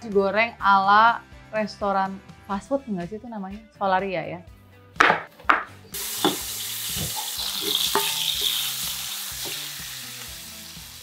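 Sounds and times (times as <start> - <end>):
knife chopping on cutting board: 5.0 - 7.2
utensil knocking against pan: 5.0 - 8.6
food sizzling in frying pan: 5.9 - 11.0.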